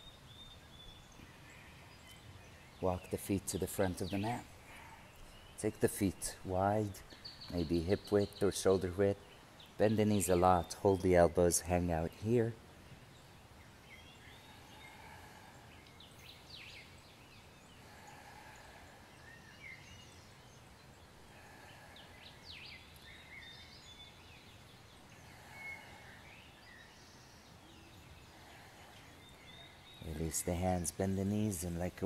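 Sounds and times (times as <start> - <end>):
faint outdoor ambience: 0.0 - 32.0.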